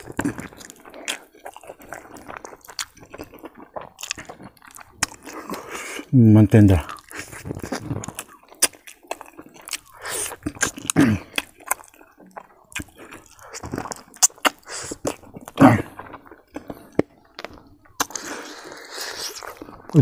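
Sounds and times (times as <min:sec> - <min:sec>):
person chewing and lip-smacking: 0:00.0 - 0:06.1, 0:06.7 - 0:20.0.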